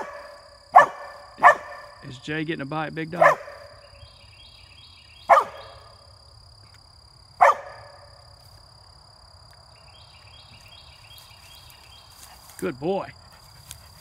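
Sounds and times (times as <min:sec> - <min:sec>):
dog barking: 0:00.0 - 0:02.0, 0:03.2 - 0:03.8, 0:05.3 - 0:05.8, 0:07.4 - 0:08.0.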